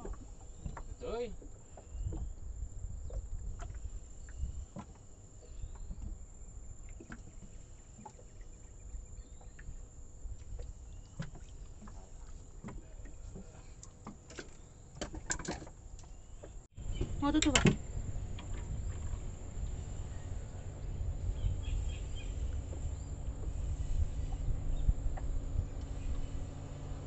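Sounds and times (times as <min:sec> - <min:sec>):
water lapping around boat: 0:00.0 - 0:27.0
wind rumble: 0:02.0 - 0:04.8, 0:16.8 - 0:27.0.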